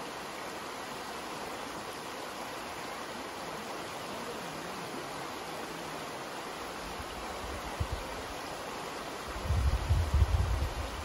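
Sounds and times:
creek water rushing over rocks: 0.0s - 11.0s
wind buffeting microphone: 9.4s - 11.0s.

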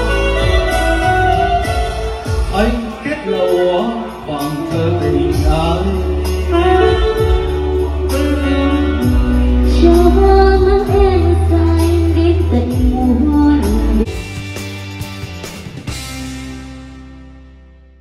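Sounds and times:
backing music with heavy bass: 0.0s - 18.0s
woman singing into a microphone: 6.4s - 14.1s.

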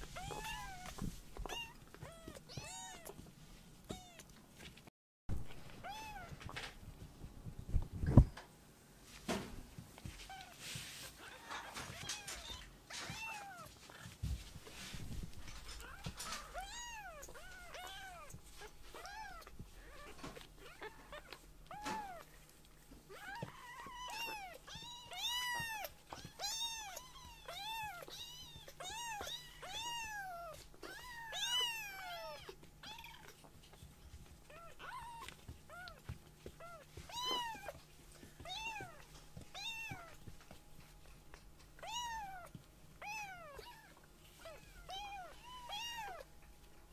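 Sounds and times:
kittens mewing: 34.5s - 37.8s.

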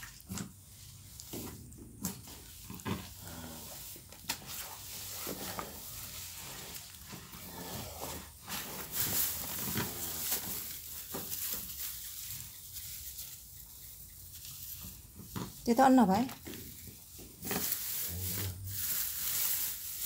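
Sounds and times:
cow groaning: 7.2s - 8.4s.

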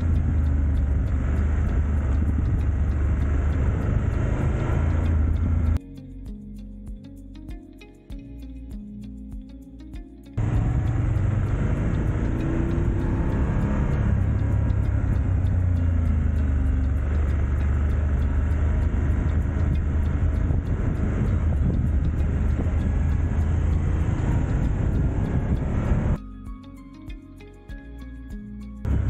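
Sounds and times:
motorcycle engine running: 0.0s - 5.8s, 10.4s - 26.2s
road noise: 0.0s - 5.8s, 10.4s - 26.2s
wind noise: 0.0s - 5.8s, 10.4s - 26.2s.

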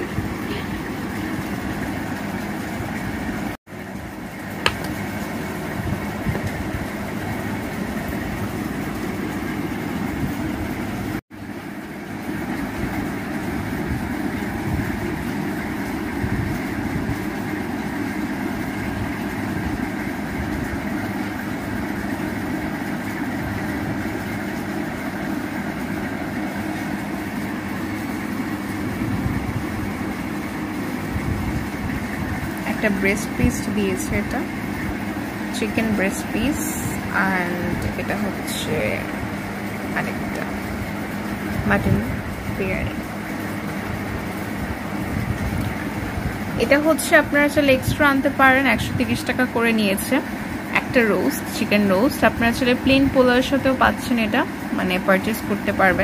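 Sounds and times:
mechanical hum: 0.0s - 56.0s.

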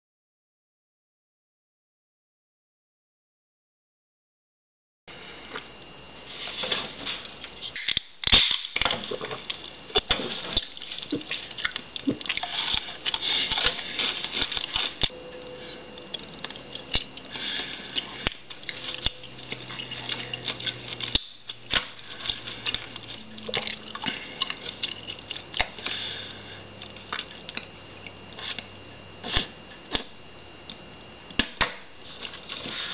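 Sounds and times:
lip smacks and chewing: 16.0s - 28.7s.

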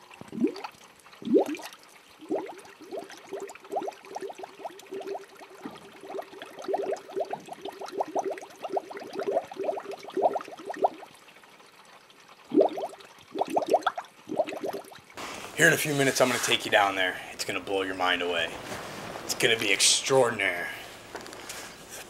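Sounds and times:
water bubbling: 0.0s - 15.2s.

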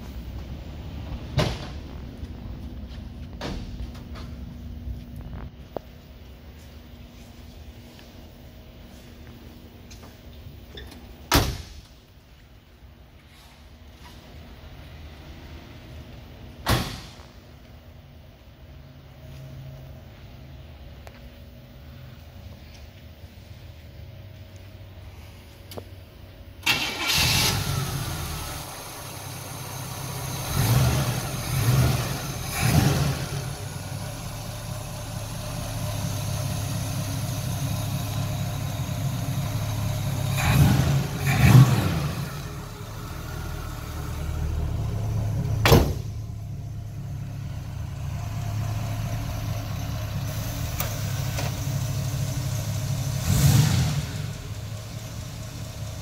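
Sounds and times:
car engine cranking and idling: 0.0s - 56.0s
engine revving: 29.5s - 34.0s, 39.0s - 44.6s, 52.8s - 54.9s.

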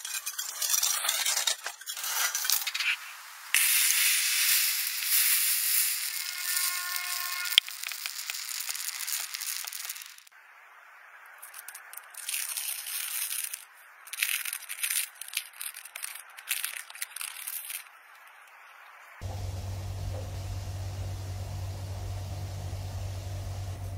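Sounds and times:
hissing scrape: 0.0s - 10.2s.

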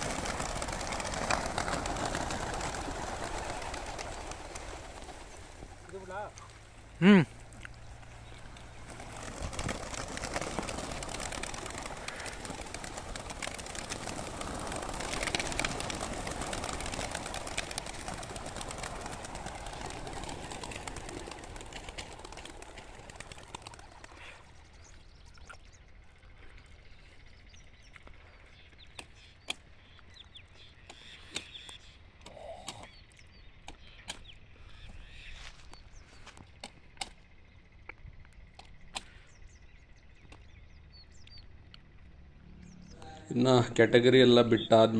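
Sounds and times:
pigeon wings flapping: 0.0s - 6.6s, 8.2s - 24.6s.

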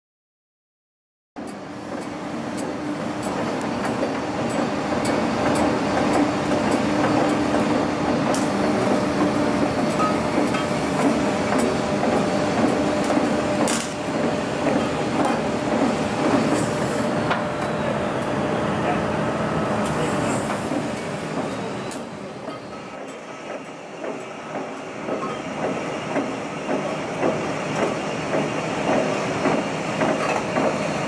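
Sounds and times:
diesel machinery humming: 1.4s - 29.9s.

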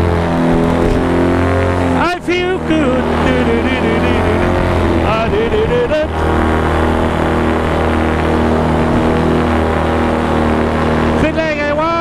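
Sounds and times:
paramotor engine droning: 0.0s - 12.0s
warbling voice-like sound: 2.0s - 8.2s.

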